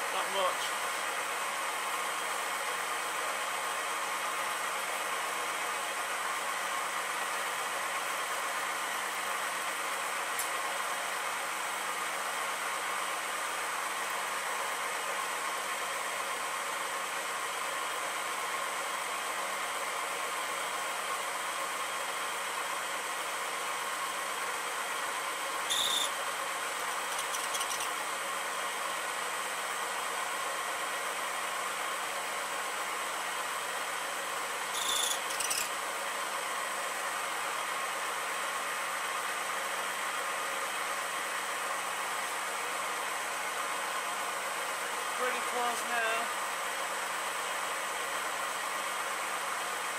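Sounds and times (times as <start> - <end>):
milling machine humming: 0.0 - 40.0
high squeak of rubbing metal: 25.7 - 26.1, 27.1 - 27.9, 34.7 - 35.7.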